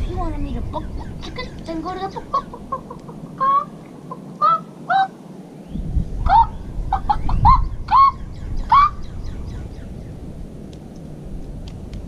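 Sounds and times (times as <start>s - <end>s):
low rumble: 0.0s - 4.5s, 5.6s - 12.0s
chicken-like clucking calls: 1.0s - 5.2s, 6.3s - 9.0s.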